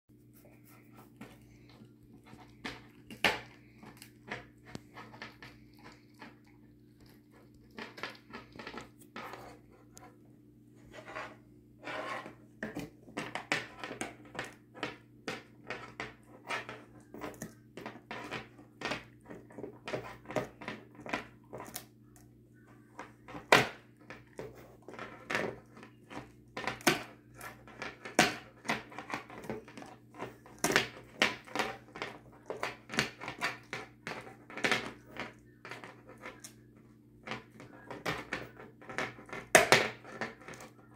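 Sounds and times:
faint low hum: 0.1 - 40.9
dog gnawing and crunching: 1.2 - 9.4.

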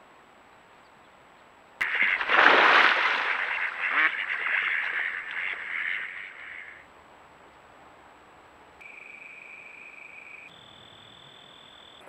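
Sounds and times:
low hiss: 0.0 - 12.0
ducks quacking: 1.8 - 6.8.

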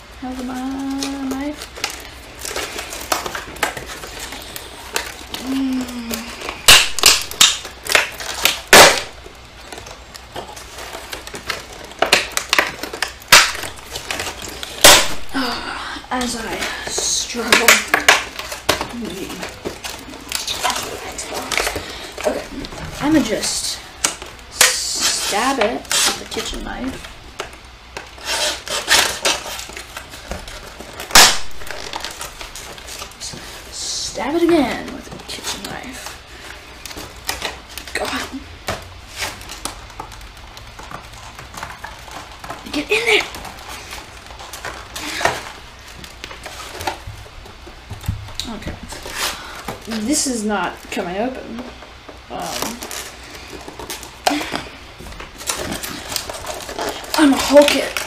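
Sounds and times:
packaging clicking and crinkling: 0.3 - 58.0
knife scraping packaging: 16.2 - 26.8, 28.0 - 33.7, 48.9 - 50.1, 52.4 - 54.6, 55.3 - 58.0.

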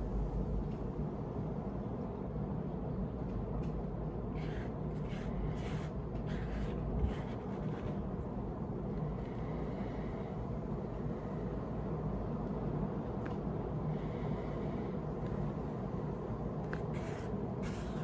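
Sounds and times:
low background rumble: 0.0 - 18.0.

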